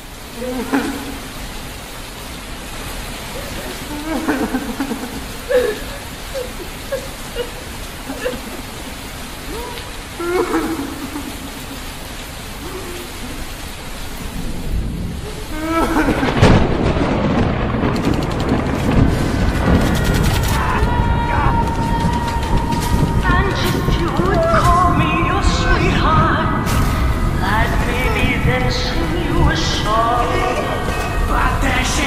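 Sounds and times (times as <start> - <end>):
rain-like hiss: 0.0 - 32.0
loud deep rumbling: 14.2 - 32.0.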